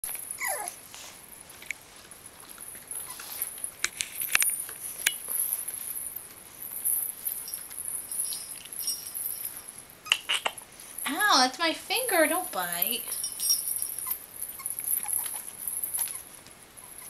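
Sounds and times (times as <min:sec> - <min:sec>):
puppies chewing toys: 0:00.0 - 0:11.2, 0:12.4 - 0:17.0.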